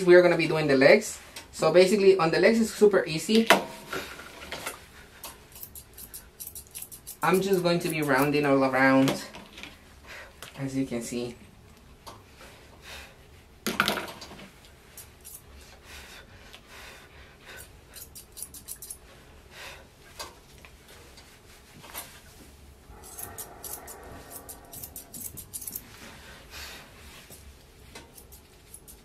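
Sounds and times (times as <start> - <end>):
scissors snipping: 5.5 - 8.4, 17.6 - 19.0, 23.0 - 25.9, 28.0 - 29.0.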